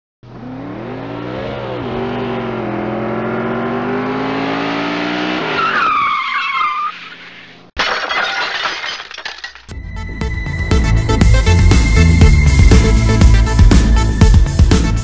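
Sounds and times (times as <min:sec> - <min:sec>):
engine revving: 0:00.2 - 0:05.6
tyres screeching: 0:05.4 - 0:07.6
car crash: 0:06.7 - 0:09.7.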